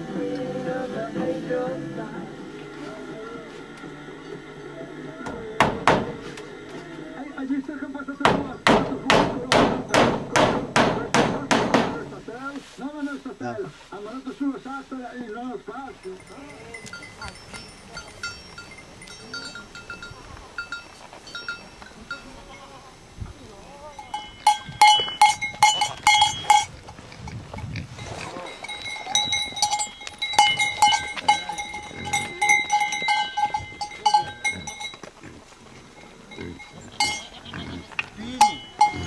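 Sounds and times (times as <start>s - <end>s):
goat bells clanking: 15.8s - 39.0s
goat bleating: 22.1s - 24.6s, 36.3s - 39.0s.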